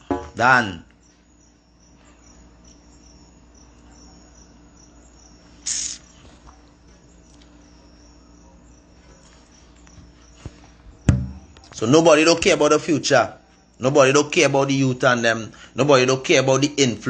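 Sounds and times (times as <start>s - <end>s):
faint high-pitched chirping: 0.0s - 17.0s
short sharp hiss: 5.6s - 6.2s.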